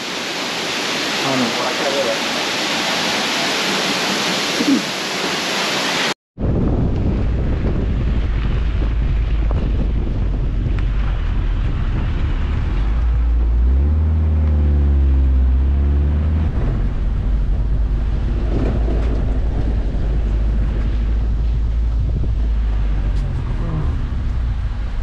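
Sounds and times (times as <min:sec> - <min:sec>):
tyres on dirt road: 0:00.0 - 0:25.0
wind buffeting microphone: 0:06.4 - 0:25.0
van engine: 0:08.6 - 0:25.0.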